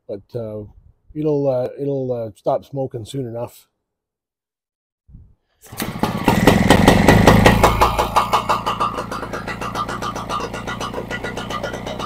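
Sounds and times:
engine starting and running: 5.6s - 12.0s.

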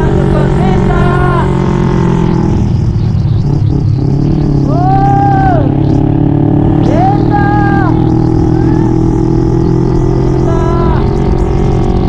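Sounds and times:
scooter engine revving: 0.0s - 12.0s.

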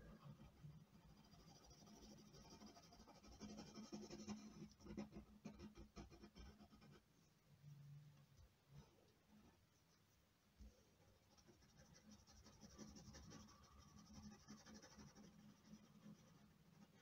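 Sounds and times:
stick scratching oil pastel: 0.2s - 7.1s, 11.3s - 17.0s.

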